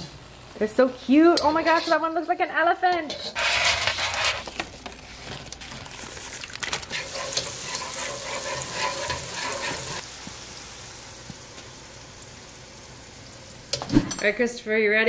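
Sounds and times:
batter sizzling in hot oil: 3.1s - 13.8s.

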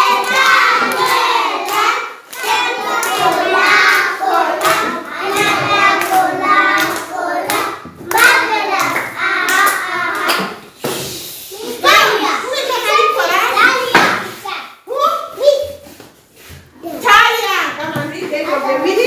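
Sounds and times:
children singing together: 0.0s - 10.7s
hand claps: 0.2s - 10.6s.

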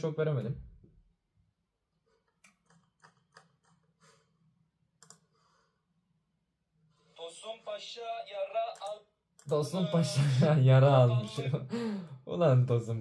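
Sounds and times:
laptop keys clicking: 2.2s - 4.0s, 5.0s - 5.3s.

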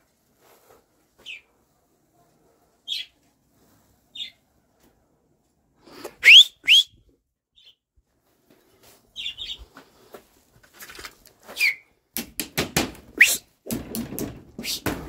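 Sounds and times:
rising whistles: 6.2s - 7.0s, 13.2s - 13.4s.

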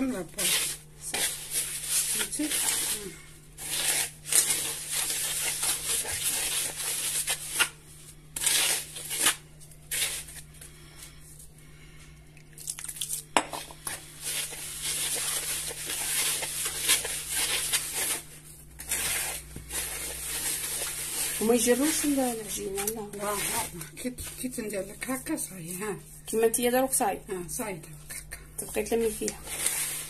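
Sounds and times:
hands raking grain in wooden bowl: 18.8s - 24.6s.

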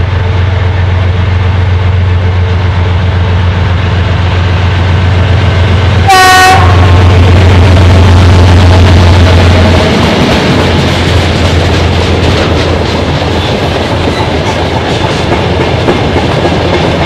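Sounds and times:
diesel locomotive engines droning: 0.0s - 17.0s
train horn blast: 6.0s - 7.3s.

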